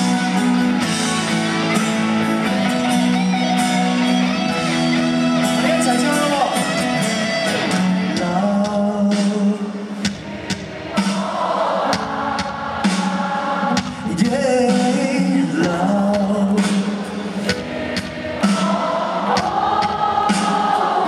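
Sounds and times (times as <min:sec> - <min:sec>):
live pop band music: 0:00.0 - 0:21.0
person singing: 0:06.6 - 0:09.9, 0:13.6 - 0:17.0.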